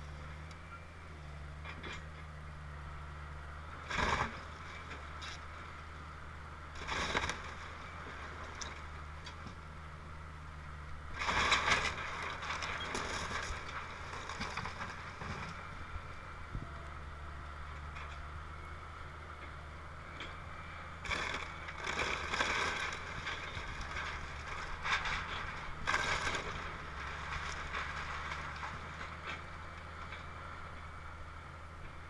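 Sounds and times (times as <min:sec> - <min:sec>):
excavator diesel engine: 0:00.0 - 0:32.0
timber breaking and debris falling: 0:21.0 - 0:28.9.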